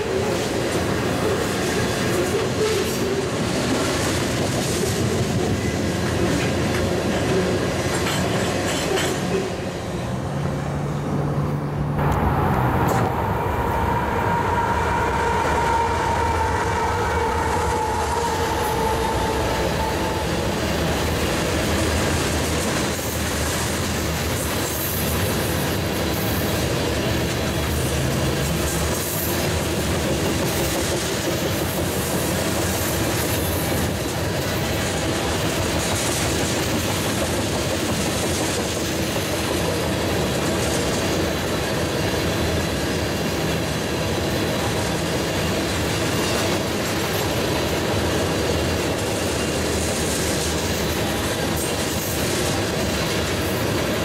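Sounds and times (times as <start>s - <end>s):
freight train rolling past: 0.0s - 54.0s
high whine: 11.1s - 22.1s.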